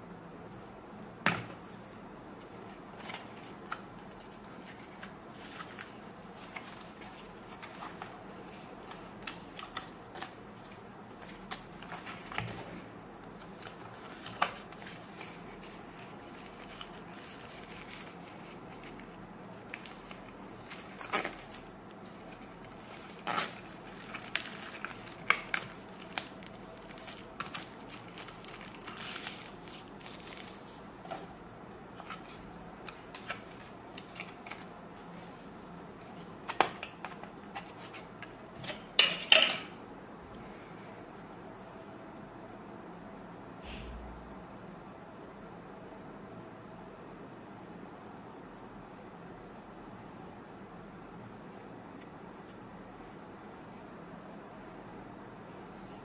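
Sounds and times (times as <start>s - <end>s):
plastic sleeve crinkling: 13.4s - 31.2s.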